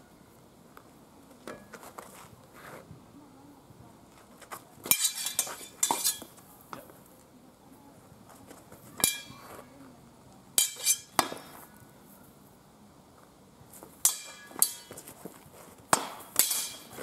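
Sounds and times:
steel swords clashing: 4.8 - 6.3, 9.0 - 9.5, 10.6 - 11.5, 14.0 - 15.1, 15.9 - 17.0.

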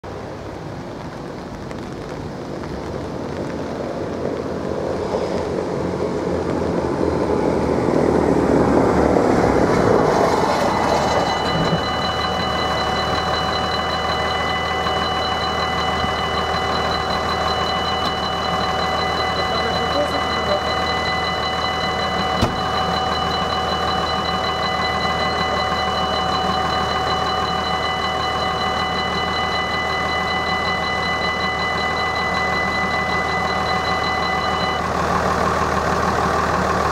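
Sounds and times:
rushing noise: 2.1 - 34.9
level-crossing warning bell: 9.6 - 34.9.

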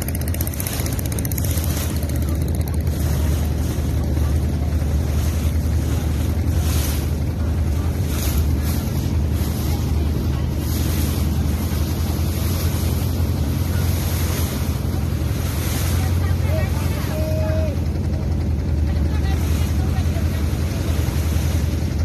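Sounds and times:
boat engine droning: 0.0 - 22.0
water rushing past hull: 0.0 - 22.0.

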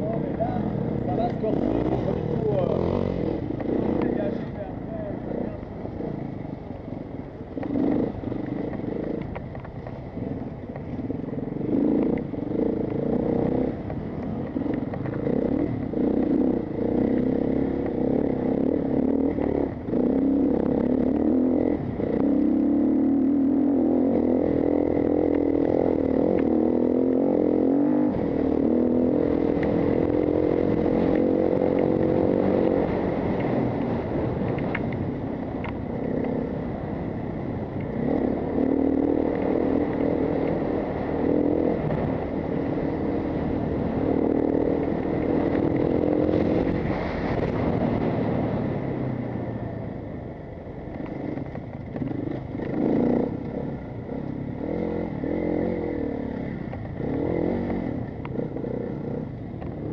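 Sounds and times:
wind on microphone: 29.1 - 54.0.

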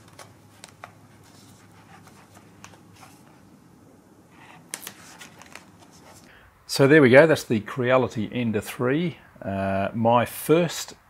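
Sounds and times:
faint low room hum: 0.0 - 11.0.

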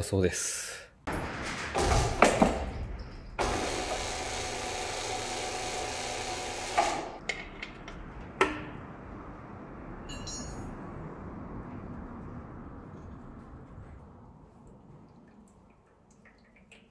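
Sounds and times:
metal clanks and knocks: 1.1 - 3.6
electric hoist motor running: 3.4 - 7.2.

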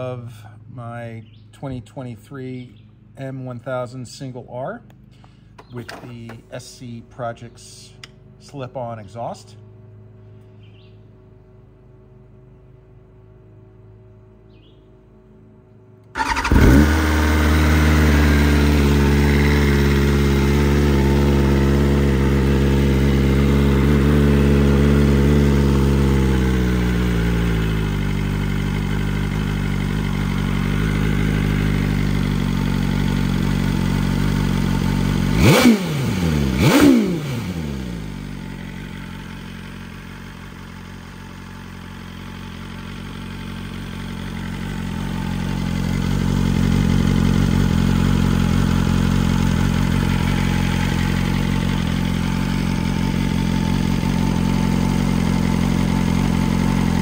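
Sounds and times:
motorcycle engine idling: 0.0 - 57.0
motorcycle engine revving: 16.0 - 57.0.

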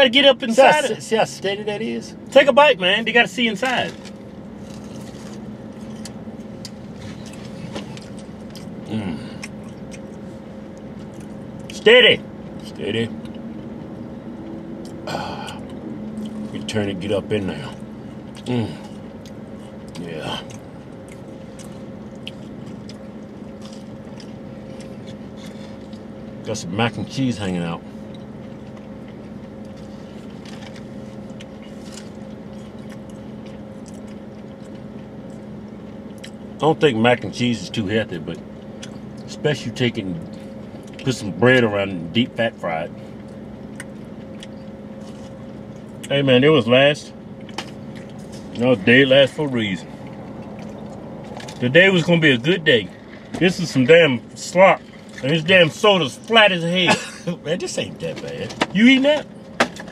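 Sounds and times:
car engine idling: 0.0 - 59.9
chewing and handling food: 3.6 - 42.3, 42.9 - 46.2, 47.2 - 53.8, 54.7 - 59.9
low voiced sound: 8.9 - 9.4, 15.0 - 16.0, 18.4 - 18.9.

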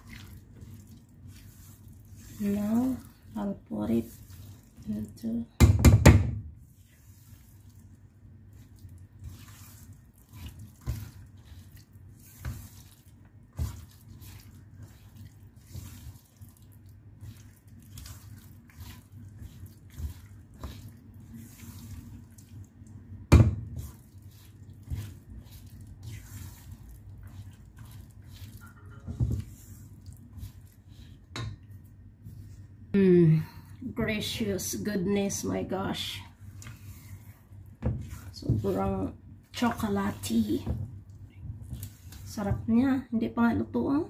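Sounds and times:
batter squelching and scraping: 0.0 - 5.6, 6.4 - 33.0, 34.0 - 44.0
spatula knocking on bowl: 5.6 - 6.4.

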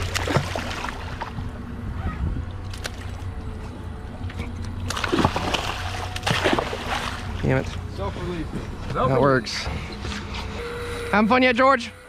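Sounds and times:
water noise: 0.0 - 9.2
wind: 0.0 - 12.0.

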